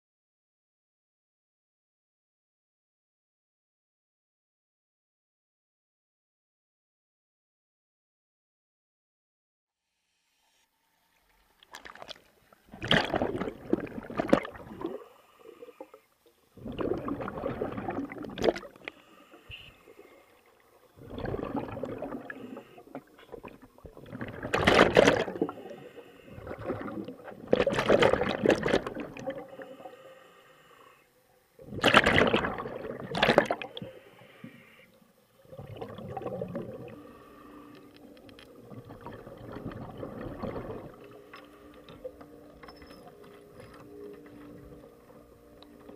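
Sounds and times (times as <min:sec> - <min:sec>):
underwater bubbles gurgling: 0:11.6 - 0:30.0, 0:31.6 - 0:34.0, 0:35.3 - 0:42.5.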